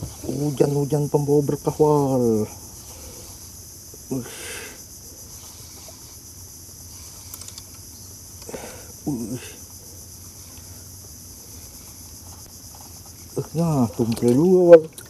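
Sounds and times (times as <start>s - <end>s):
high-pitched insect drone: 0.0s - 15.0s
wordless voice: 0.2s - 2.6s, 4.0s - 4.8s, 9.0s - 9.6s, 13.4s - 14.9s.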